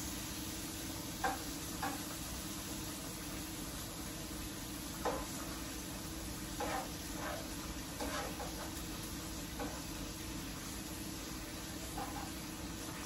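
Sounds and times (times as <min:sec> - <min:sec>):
shrimp sizzling in a pan: 0:00.0 - 0:13.0
utensil scraping and knocking pan: 0:06.6 - 0:08.7, 0:11.9 - 0:12.4.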